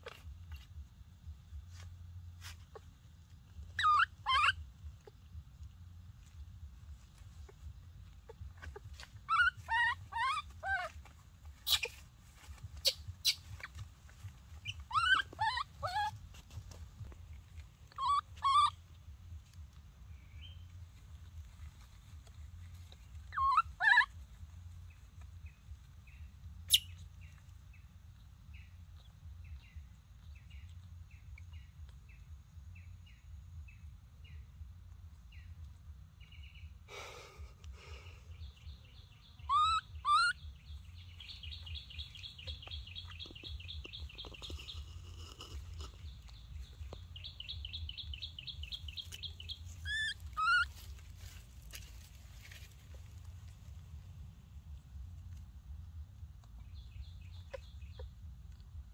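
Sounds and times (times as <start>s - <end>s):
baby monkey crying: 3.6s - 5.3s, 7.4s - 16.4s, 17.8s - 19.0s, 23.2s - 24.2s, 39.4s - 40.4s, 48.0s - 51.0s.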